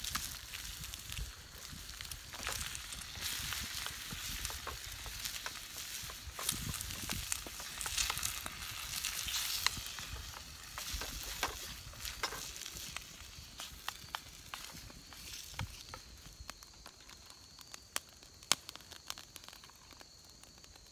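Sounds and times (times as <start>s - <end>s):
food sizzling in a skillet: 0.0s - 16.3s
spatula stirring: 1.6s - 12.9s.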